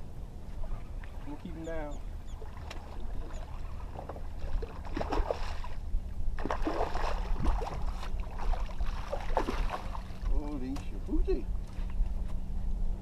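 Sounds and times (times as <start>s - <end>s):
fish splashing at surface: 6.4s - 10.1s.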